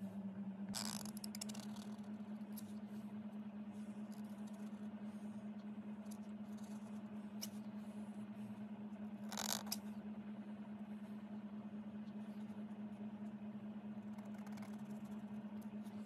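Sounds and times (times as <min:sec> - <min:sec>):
low hum: 0:00.0 - 0:16.0
pen scratching on paper: 0:00.8 - 0:02.1, 0:14.0 - 0:15.2.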